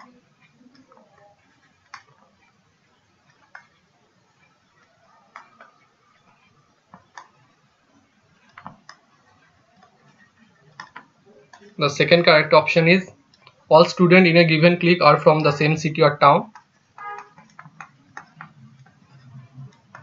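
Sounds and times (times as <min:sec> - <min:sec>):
stylus tapping on writing surface: 0:16.5 - 0:20.0.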